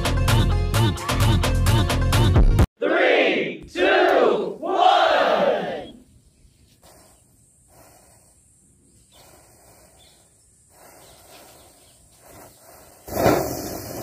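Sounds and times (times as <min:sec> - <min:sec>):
ground firework rushing hiss: 0:06.5 - 0:14.0
burning matchstick chain fizzing: 0:06.8 - 0:14.0.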